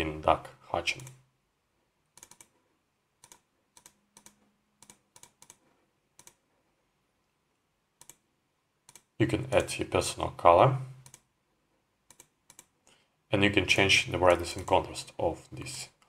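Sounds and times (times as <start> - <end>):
computer mouse clicks: 0.9 - 1.2, 2.2 - 2.6, 3.2 - 6.4, 8.0 - 8.2, 8.8 - 9.2, 11.0 - 11.3, 12.1 - 13.0.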